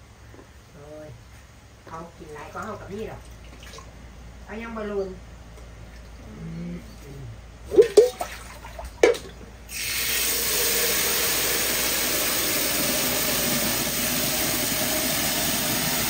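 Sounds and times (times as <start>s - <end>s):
loud steady hissing: 9.6s - 16.0s.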